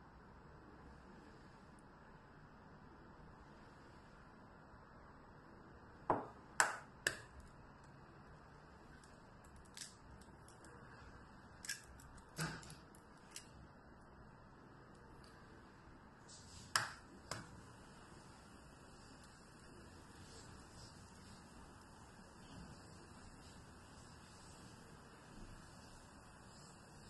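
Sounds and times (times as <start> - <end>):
egg cracking against bowl rim: 9.4 - 10.7.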